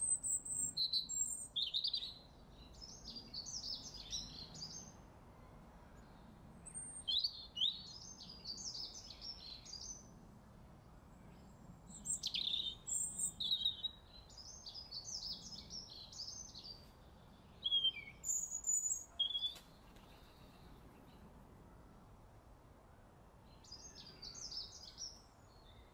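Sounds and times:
songbird twittering: 0.0 - 5.0, 11.9 - 16.9, 17.5 - 21.2.

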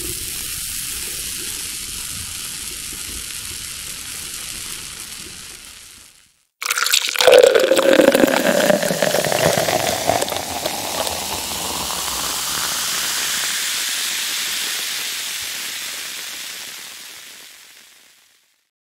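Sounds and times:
beer pouring into a glass: 6.6 - 17.0
beer foam fizzing: 6.6 - 18.2.

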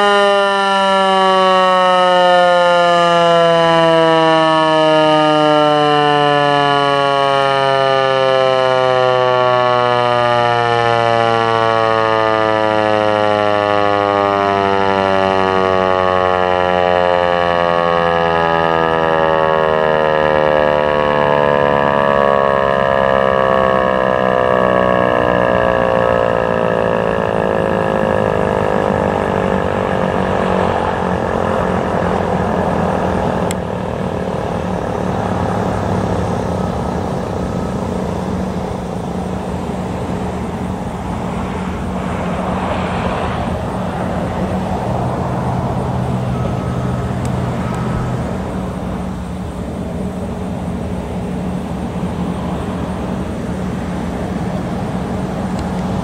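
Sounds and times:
road traffic noise: 0.0 - 56.0
siren winding down: 0.0 - 56.0
low hum: 19.2 - 56.0.

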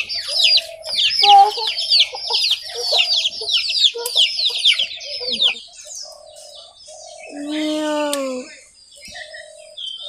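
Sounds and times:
chickens clucking: 0.0 - 7.5
chickens peeping: 0.0 - 10.0.

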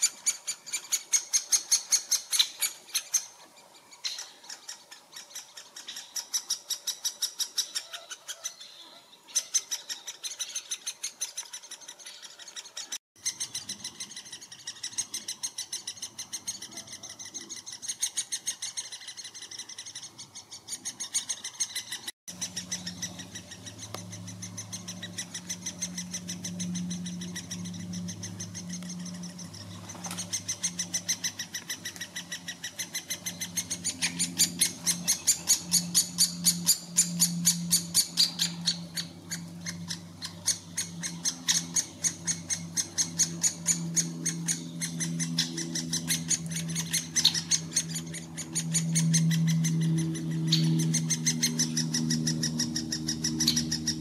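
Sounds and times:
woodpecker nestlings begging: 0.0 - 54.0.

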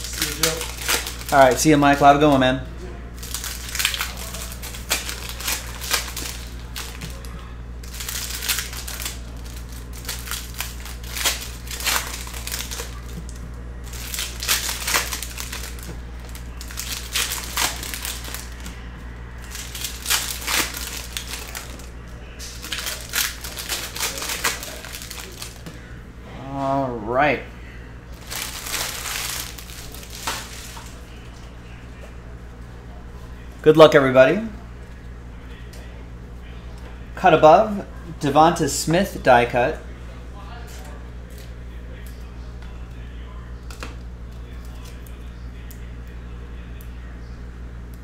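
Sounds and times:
wrappers crinkling and tearing: 0.0 - 2.4, 3.2 - 18.8, 19.4 - 25.7, 28.1 - 31.1
steady low hum: 0.0 - 48.0.

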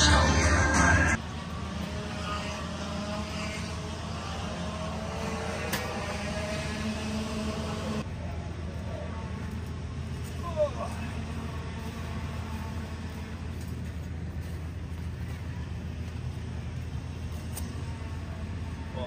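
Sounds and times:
background music: 0.0 - 1.2
distant kart engines droning: 0.0 - 19.0
low hum: 0.0 - 19.0.

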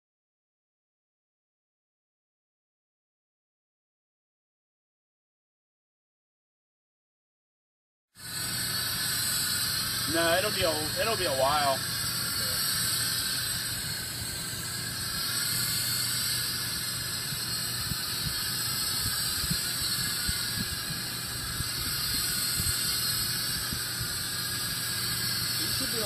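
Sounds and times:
gas hissing through a hose: 8.2 - 26.0.

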